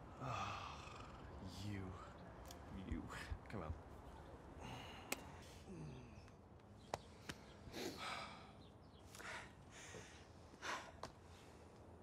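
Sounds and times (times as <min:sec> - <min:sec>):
people sighing and breathing: 0:00.0 - 0:01.4, 0:04.5 - 0:06.5, 0:07.1 - 0:11.9.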